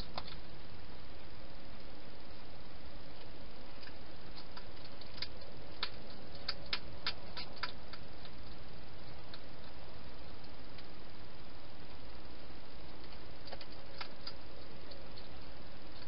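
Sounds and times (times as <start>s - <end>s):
steady hiss: 0.0s - 16.0s
hedgehog crunching dry food: 3.2s - 10.9s, 12.8s - 16.0s.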